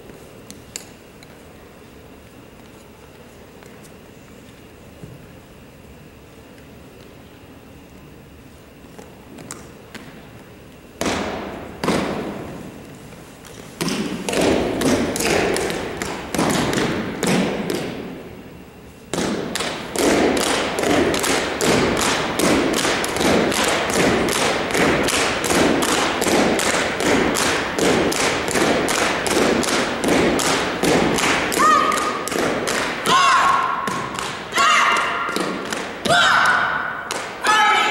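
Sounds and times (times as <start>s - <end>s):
stomping and clapping in unison: 19.1s - 37.4s.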